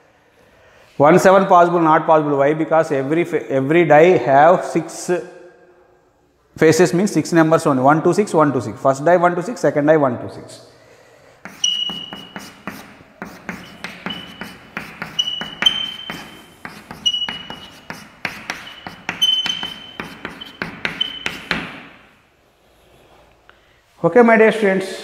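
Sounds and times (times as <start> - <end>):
chalk squeaks: 11.4 - 22.0
chalk tapping on chalkboard: 11.4 - 22.0.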